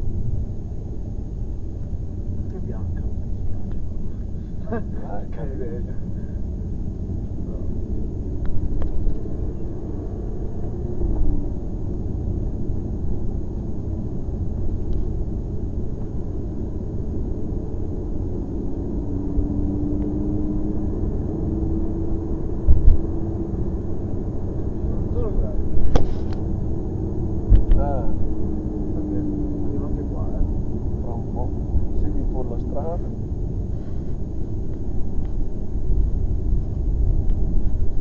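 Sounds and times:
car engine and road noise inside: 0.0 - 38.0
brief thump: 25.9 - 26.3.

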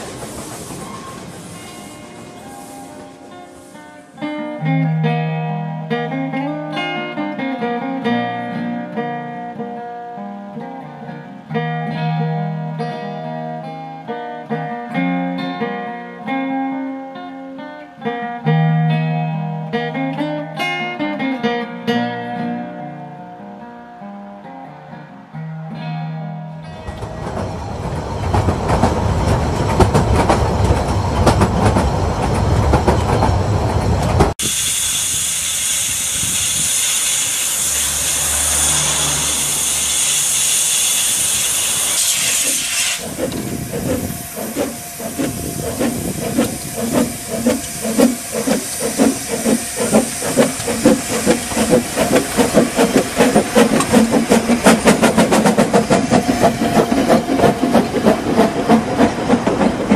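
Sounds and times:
train carriage running noise: 0.0 - 4.3, 26.7 - 59.9
acoustic guitar playing: 1.6 - 27.2.

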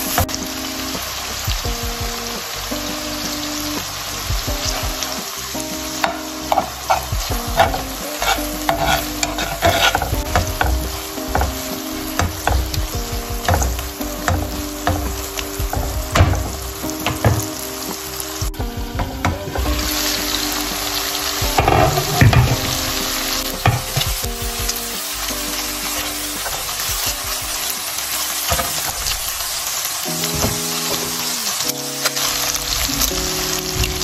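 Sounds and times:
vegetables sizzling in oil: 0.0 - 34.0
spatula stirring and scraping: 6.1 - 17.6.

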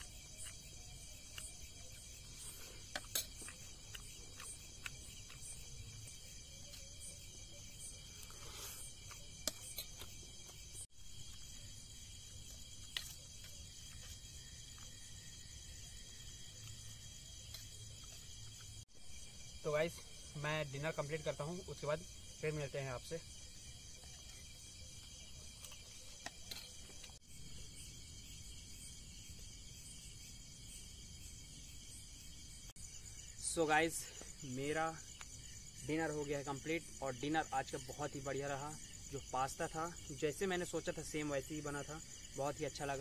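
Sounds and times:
night insects chirring: 0.0 - 43.0.

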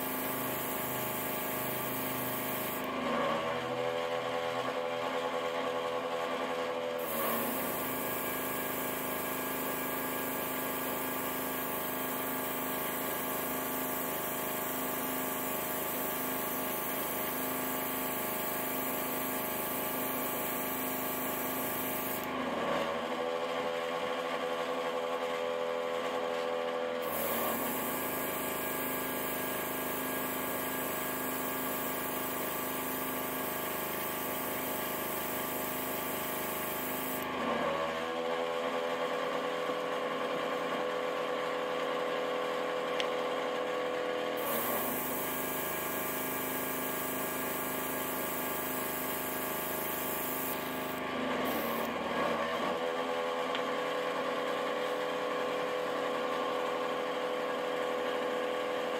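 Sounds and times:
air compressor humming: 0.0 - 2.9, 7.0 - 22.4, 27.0 - 37.4, 44.4 - 52.3.

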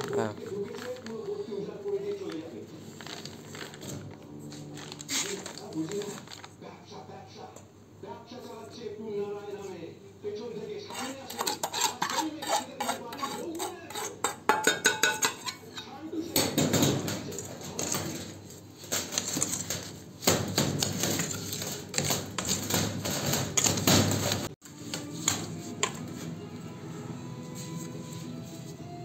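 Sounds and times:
steel bowl clinking and scraping: 10.9 - 15.9.

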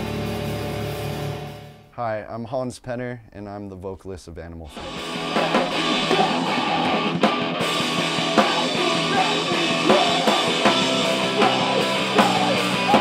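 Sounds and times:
rock band playing: 0.0 - 1.9, 4.7 - 13.0.

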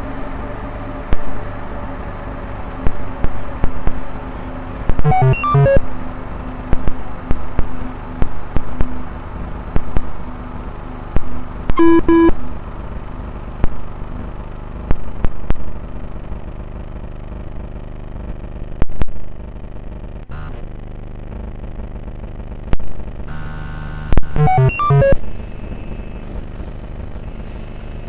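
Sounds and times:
short electronic beeps: 5.1 - 5.8, 11.8 - 12.3, 24.4 - 25.2.

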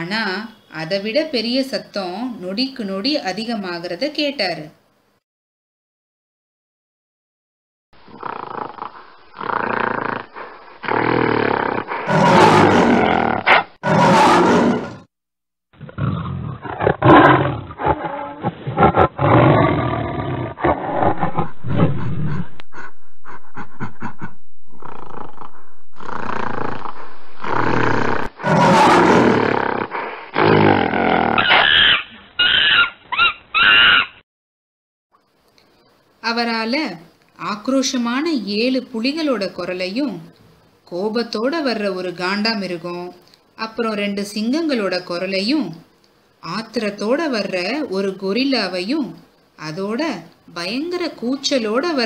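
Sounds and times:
big cats roaring and growling: 8.1 - 15.1, 15.8 - 31.9
short shrill animal calls: 31.4 - 34.2.

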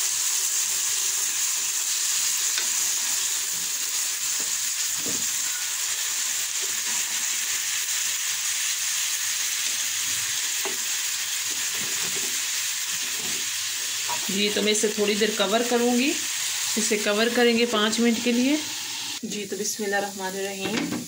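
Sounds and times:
chicken sizzling in a frying pan: 0.0 - 20.8.

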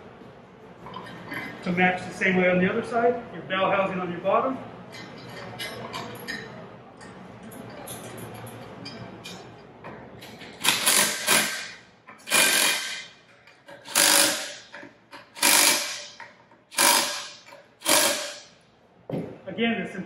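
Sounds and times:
power driver bursts: 10.6 - 13.1, 13.8 - 14.6, 15.4 - 18.5.

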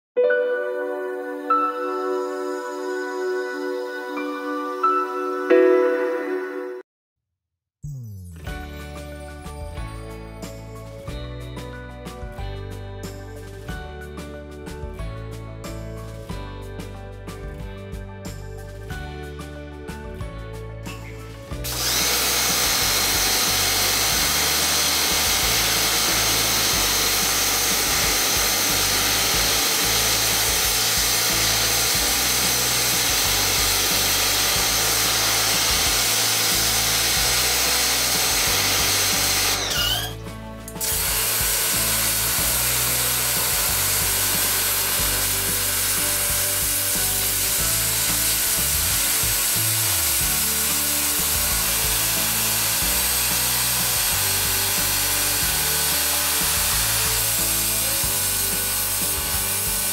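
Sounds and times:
pressure washer spraying water: 21.6 - 59.9.

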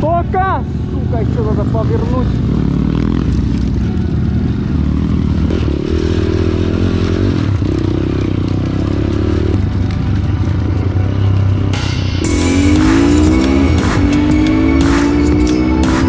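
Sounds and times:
pit bike engine revving: 0.7 - 9.8, 12.2 - 16.0
music: 3.2 - 16.0.

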